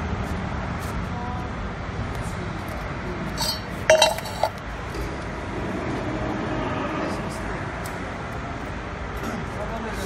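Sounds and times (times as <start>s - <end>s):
workshop background noise: 2.6s - 5.0s
steel pieces clinking: 3.4s - 4.6s.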